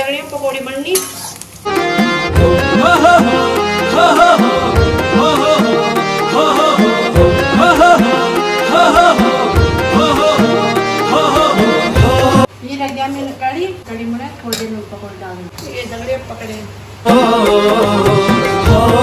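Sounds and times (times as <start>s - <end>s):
music with repeating drum beat: 1.7s - 12.5s, 17.1s - 19.0s.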